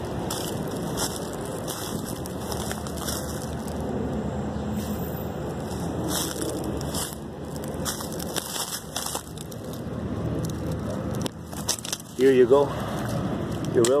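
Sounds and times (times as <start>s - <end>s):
footsteps crunching on gravel: 0.0s - 4.0s, 5.5s - 9.9s
low background noise: 0.0s - 14.0s.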